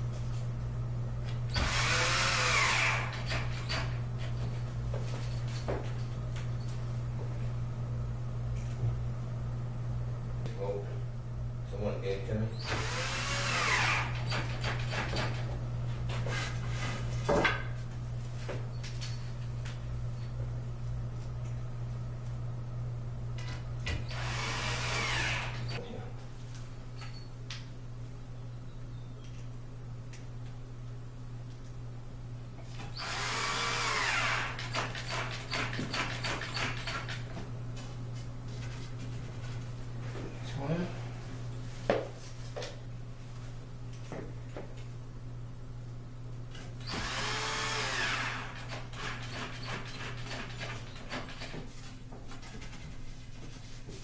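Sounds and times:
steady low hum: 0:00.0 - 0:54.0
furniture parts scraping: 0:16.1 - 0:17.4.

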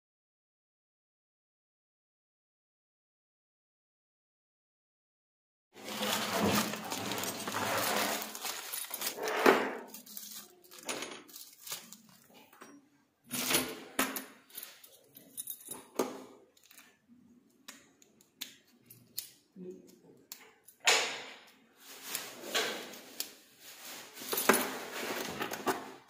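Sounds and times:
rustling and scraping: 0:05.8 - 0:12.7, 0:21.8 - 0:26.0
keys rattling: 0:05.8 - 0:16.9, 0:24.2 - 0:25.9.

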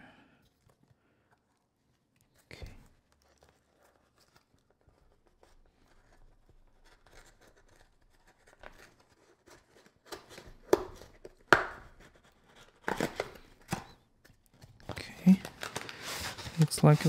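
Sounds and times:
cardboard rustling: 0:00.4 - 0:17.0
cardboard tearing: 0:02.8 - 0:17.0
sharp cardboard cracks: 0:06.8 - 0:15.9.

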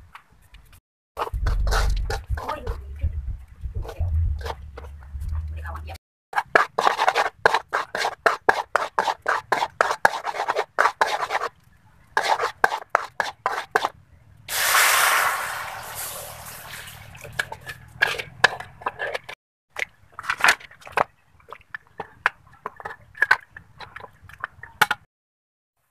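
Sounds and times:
metal spatula scraping a wok: 0:01.2 - 0:02.8, 0:03.8 - 0:05.3, 0:06.4 - 0:11.5, 0:12.2 - 0:13.9, 0:15.9 - 0:19.4
loud sizzle of hot caramel: 0:14.5 - 0:17.2.

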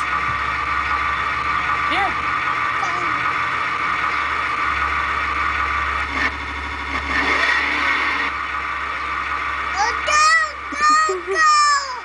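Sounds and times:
low hum: 0:00.0 - 0:12.0
toy car engine sound effect: 0:09.7 - 0:12.0.

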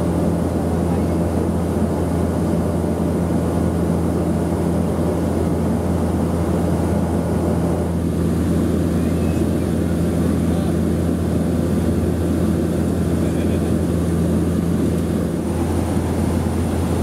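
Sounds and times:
propeller engine hum: 0:00.0 - 0:17.0
rushing air: 0:15.3 - 0:17.0.

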